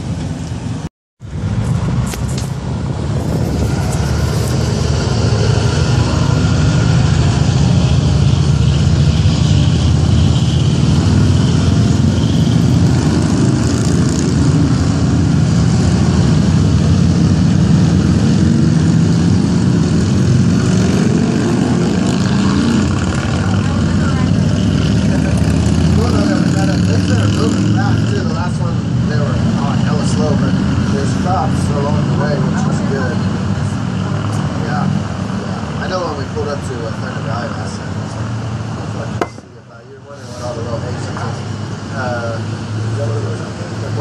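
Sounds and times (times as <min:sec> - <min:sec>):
cars passing: 0:00.0 - 0:44.0
motorcycles riding past: 0:01.3 - 0:36.0.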